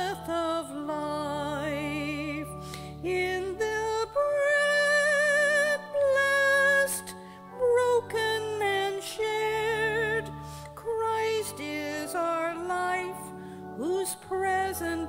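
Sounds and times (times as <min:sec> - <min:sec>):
church hymn music: 0:00.0 - 0:15.0.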